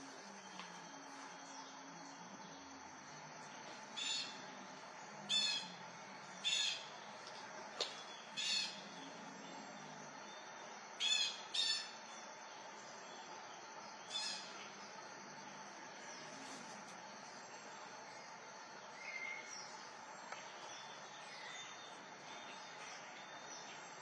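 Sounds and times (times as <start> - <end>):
high-pitched chirping animal calls: 4.0 - 4.4, 5.3 - 5.8, 6.4 - 6.9, 8.4 - 8.8, 11.0 - 12.0, 14.1 - 14.5.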